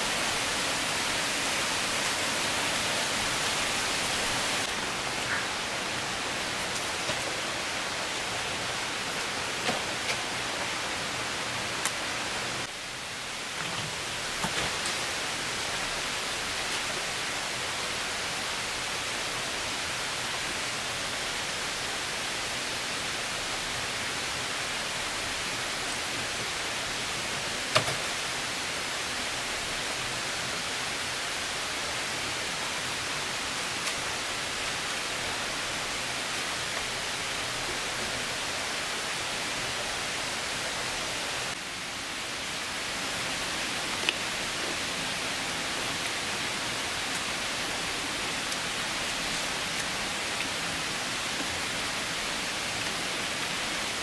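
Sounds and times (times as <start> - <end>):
hiss of falling water: 0.0 - 54.0.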